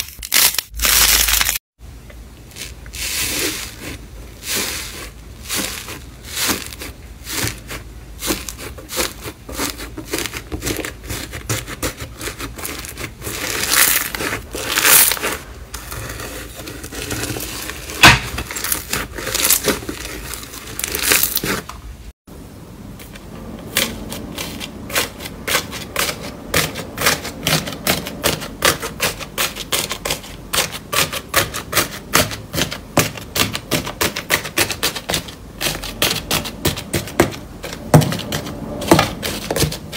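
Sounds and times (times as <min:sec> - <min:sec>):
slime crust crackling: 0:02.4 - 0:21.7.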